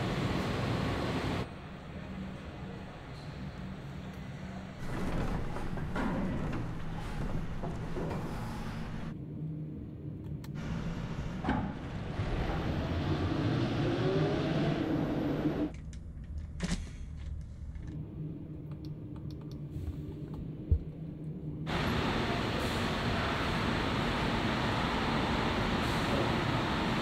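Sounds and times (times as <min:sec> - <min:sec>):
machinery hum: 0:17.5 - 0:27.0.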